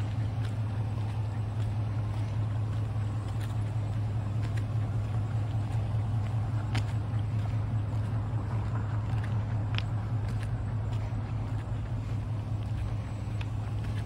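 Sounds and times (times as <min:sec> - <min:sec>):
pickup engine idling: 0:00.0 - 0:14.0.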